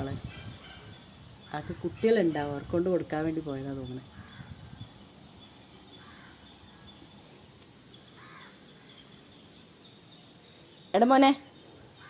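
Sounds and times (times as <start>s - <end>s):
faint outdoor ambience: 0.0s - 12.0s
distant crow cawing: 4.0s - 4.8s, 5.9s - 7.2s, 8.0s - 9.2s.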